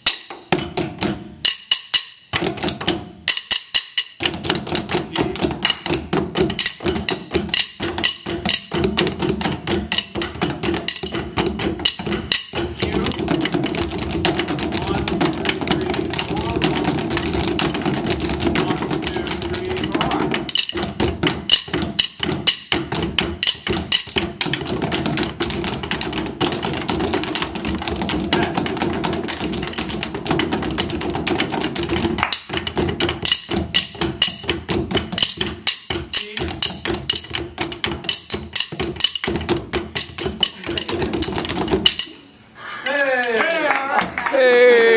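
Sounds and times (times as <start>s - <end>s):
drumsticks clicking on practice pads: 18.4s - 26.7s, 27.3s - 42.2s.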